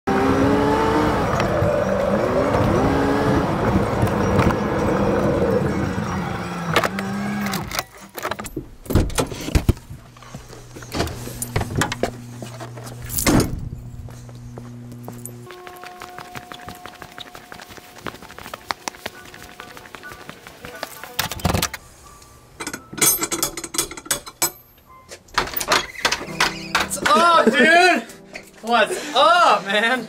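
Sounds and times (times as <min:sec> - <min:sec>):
car engine driving: 0:00.1 - 0:07.8, 0:08.6 - 0:15.5
steady low hum: 0:08.7 - 0:15.5.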